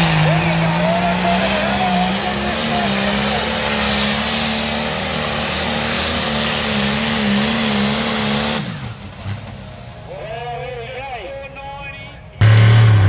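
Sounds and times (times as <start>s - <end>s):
tractor engine droning under load: 0.0s - 13.0s.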